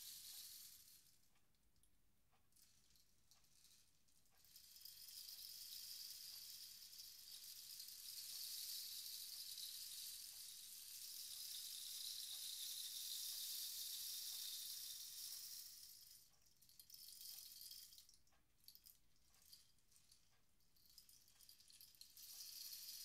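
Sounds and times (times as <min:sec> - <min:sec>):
rain stick pellets trickling: 0:00.0 - 0:01.0, 0:04.4 - 0:16.2, 0:16.8 - 0:18.1, 0:20.8 - 0:23.0.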